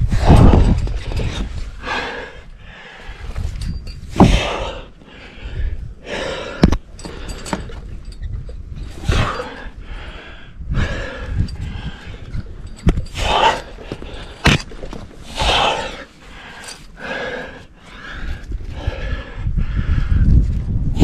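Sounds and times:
person gasping breaths: 4.2 - 7.7, 9.1 - 12.5, 15.3 - 20.3.

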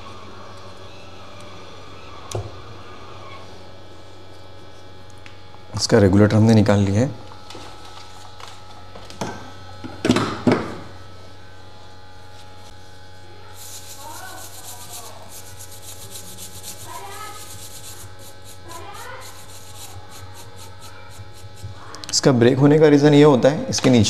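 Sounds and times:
steady mains hum: 0.0 - 24.0
high-pitched rhythmic scratching: 13.5 - 21.8.

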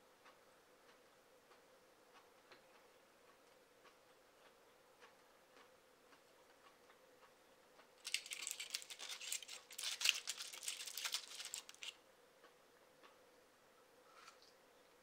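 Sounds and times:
salt rustling: 8.0 - 11.9
foil cup crinkling: 8.0 - 12.0.

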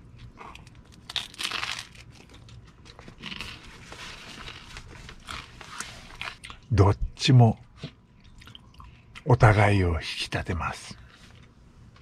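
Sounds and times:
person crunching toast: 0.2 - 6.7.

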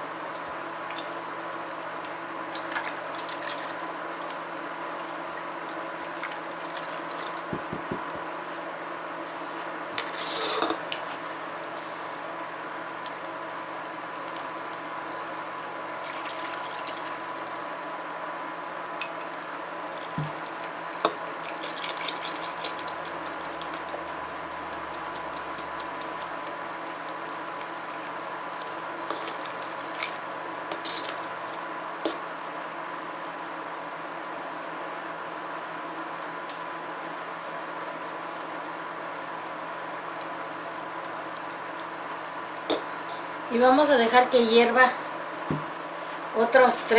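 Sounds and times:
spoon scraping in wire sieve: 10.0 - 10.8
liquid pouring splash: 15.9 - 17.4.

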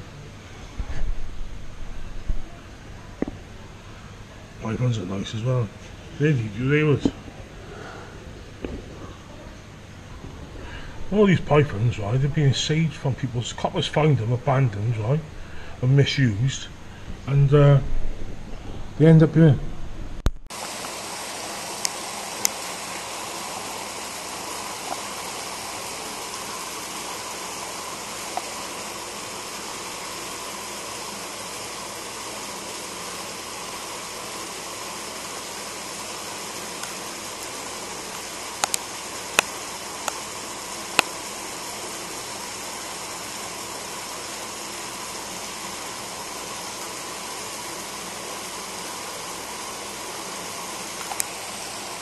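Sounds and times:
running water rushing: 20.5 - 52.0.

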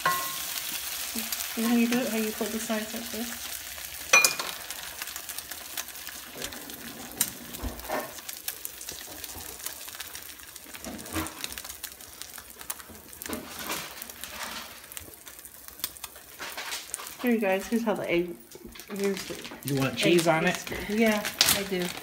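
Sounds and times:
food sizzling in skillet: 0.0 - 22.0
small pops and crackles: 7.2 - 17.8, 18.4 - 22.0.

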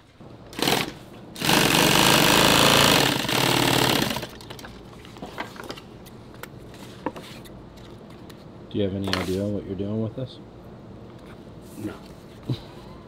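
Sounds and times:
industrial sewing machine stitching: 0.5 - 4.4.

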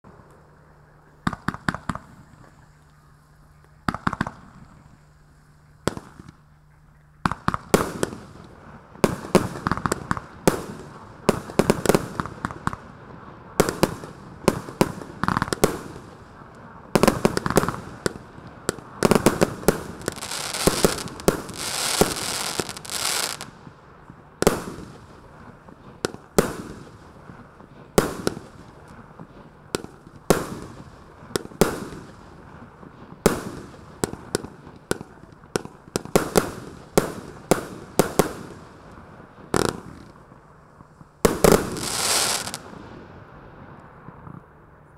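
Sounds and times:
fireworks reports and bursts: 13.5 - 43.0
fireworks hissing: 19.0 - 23.6, 41.3 - 42.7.

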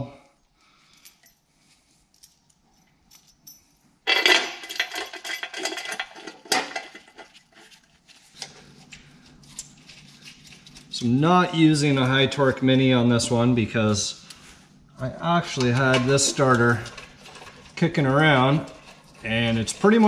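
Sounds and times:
bolts and wrench clinking: 2.1 - 7.4.

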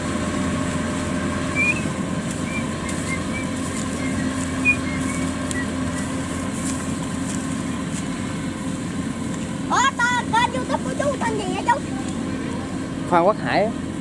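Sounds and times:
combine harvester hum: 0.0 - 14.0
short high chirps: 1.5 - 6.2.

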